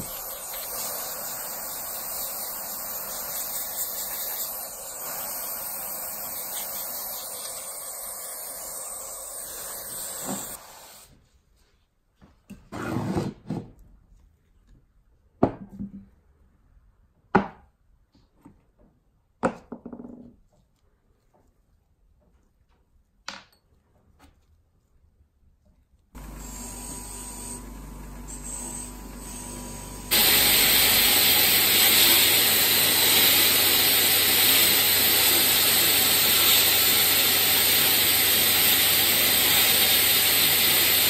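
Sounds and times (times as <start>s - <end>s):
aerosol spray hissing: 0.0s - 11.1s, 30.0s - 41.0s.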